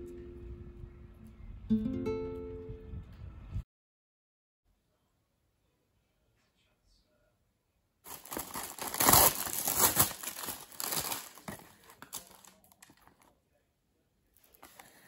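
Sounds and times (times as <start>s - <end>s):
plastic film tearing and crinkling: 8.1s - 13.2s
faint crackles in cardboard tray: 8.1s - 13.4s.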